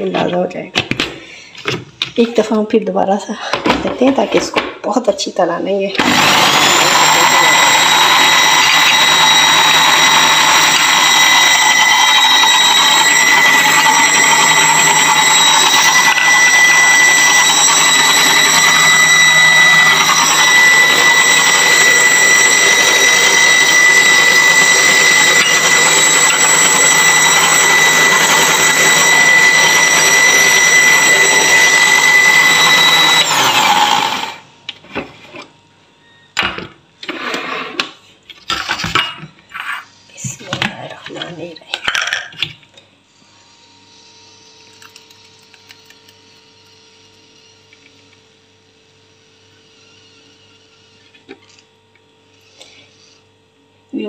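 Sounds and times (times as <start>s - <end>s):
electric blender whining: 5.9s - 34.8s.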